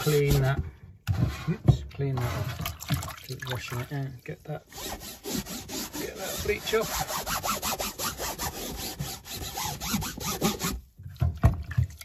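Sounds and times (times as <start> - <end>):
wet cloth scrubbing mesh screen: 3.5 - 10.8.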